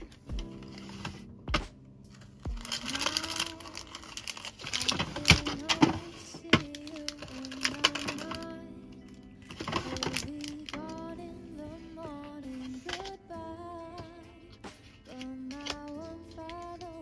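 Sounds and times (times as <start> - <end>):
cellophane bags crinkling: 2.1 - 11.0
plastic drawers clicking: 2.2 - 8.5, 9.4 - 11.0.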